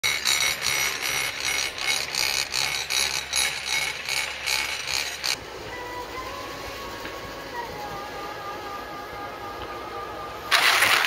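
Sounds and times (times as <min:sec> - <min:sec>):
chairlift machinery clacking: 0:00.0 - 0:05.4.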